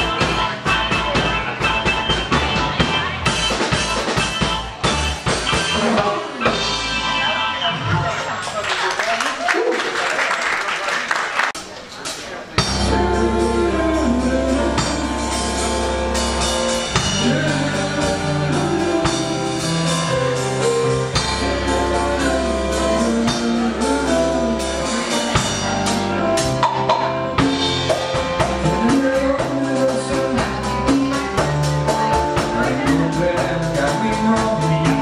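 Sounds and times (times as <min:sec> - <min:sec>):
sustained bass line: 0:00.0 - 0:08.3, 0:12.6 - 0:35.0
drum kit beat: 0:00.0 - 0:08.9, 0:12.0 - 0:35.0
music melody: 0:12.6 - 0:35.0.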